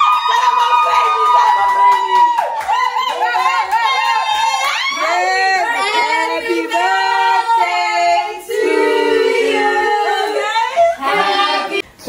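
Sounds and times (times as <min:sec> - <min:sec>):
women singing: 0:03.0 - 0:12.0.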